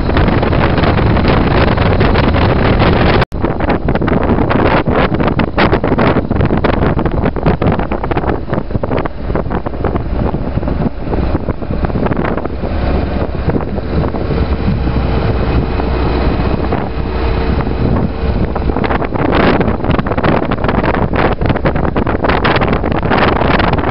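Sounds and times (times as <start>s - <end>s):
motorcycle engine rumble: 0.0s - 23.9s
wind buffeting microphone: 0.0s - 23.9s.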